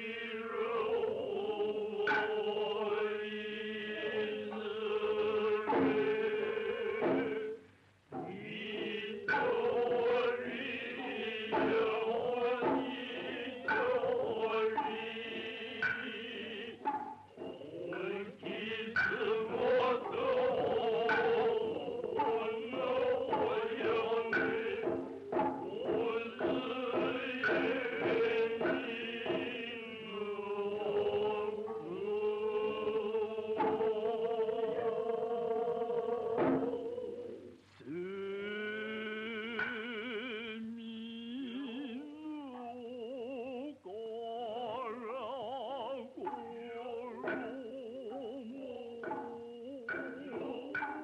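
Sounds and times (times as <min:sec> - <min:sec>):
men chanting in unison: 0:00.0 - 0:07.6, 0:08.2 - 0:36.9, 0:37.8 - 0:51.0
sharp hand drum strikes: 0:08.1 - 0:29.6.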